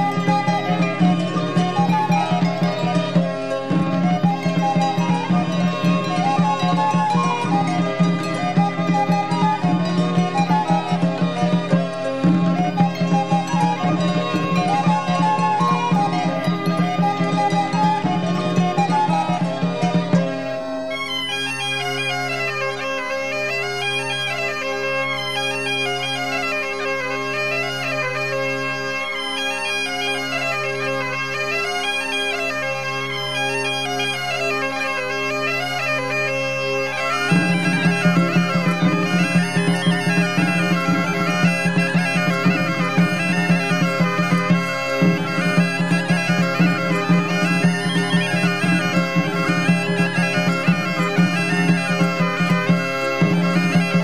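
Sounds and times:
bagpipe playing folk tune: 0:00.0 - 0:54.0.

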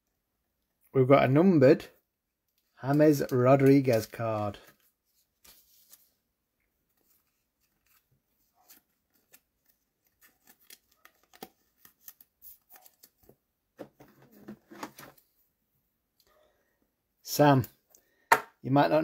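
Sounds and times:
plastic card sleeve crinkling: 0:02.9 - 0:06.2, 0:06.9 - 0:13.4.

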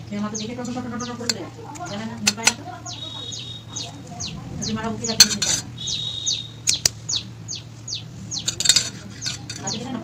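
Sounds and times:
bird chirping: 0:00.2 - 0:10.0
spoon scraping a metal tin: 0:05.2 - 0:05.7, 0:08.4 - 0:09.8.

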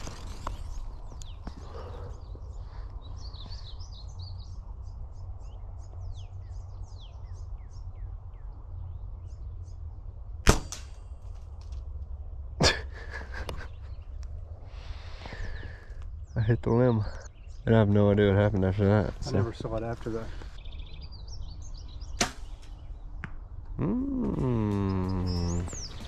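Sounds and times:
small birds chirping: 0:00.0 - 0:10.3, 0:12.8 - 0:26.0
bow firing snap: 0:10.4 - 0:11.0, 0:22.2 - 0:22.8
arrow hitting tree limb: 0:10.4 - 0:11.9, 0:22.1 - 0:23.4.

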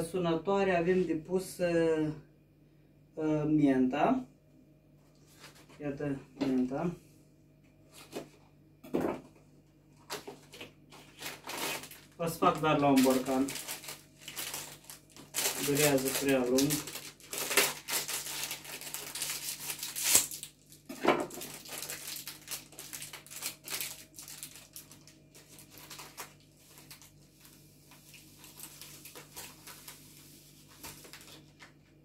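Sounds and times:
plastic bag crinkling: 0:09.9 - 0:31.9
dried leaves rustling: 0:10.2 - 0:20.4, 0:21.4 - 0:31.6.

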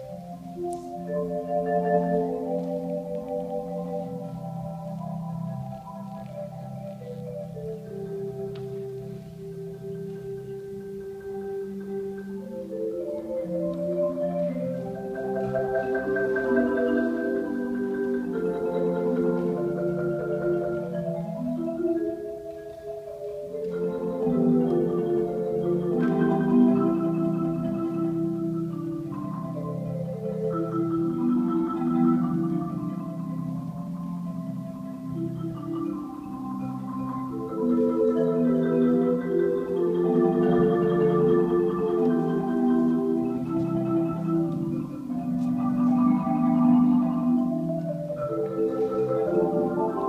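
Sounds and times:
marimba playing slow melody: 0:00.0 - 0:50.0.

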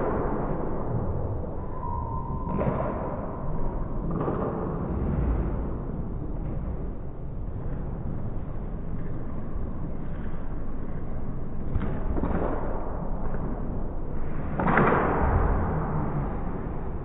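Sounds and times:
steady low rumble: 0:00.0 - 0:17.0
stick hitting puck: 0:02.5 - 0:04.9, 0:11.7 - 0:16.4
loud echoing bang: 0:14.5 - 0:17.0.

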